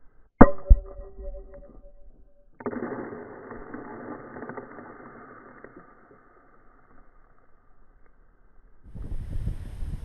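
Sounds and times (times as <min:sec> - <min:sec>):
metallic ring: 0:00.4 - 0:02.7.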